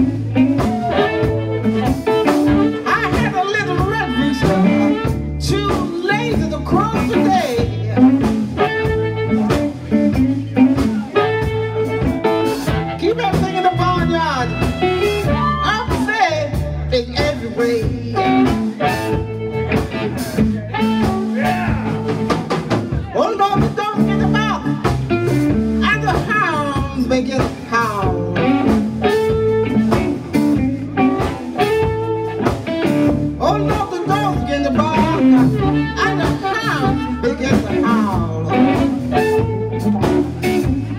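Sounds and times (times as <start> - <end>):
bass guitar: 0.0 - 40.9
electric guitar: 0.0 - 40.9
live blues band: 0.0 - 40.9
woman singing: 5.4 - 7.8, 15.2 - 18.6
amplified harmonica: 34.1 - 40.9.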